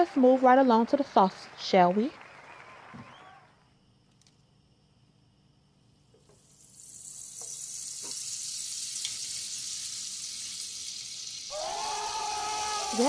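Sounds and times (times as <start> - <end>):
butter sizzling in hot oil: 6.3 - 11.9.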